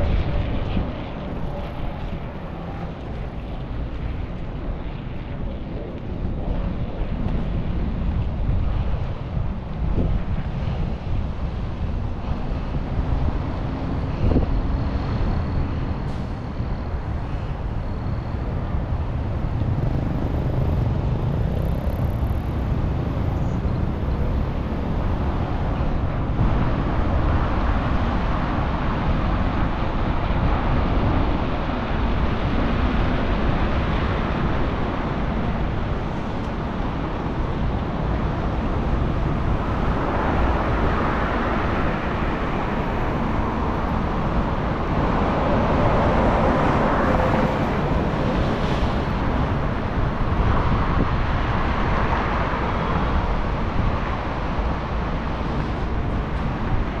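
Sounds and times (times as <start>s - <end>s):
city traffic noise: 0.0s - 57.0s
wind rumbling on microphone: 0.0s - 57.0s.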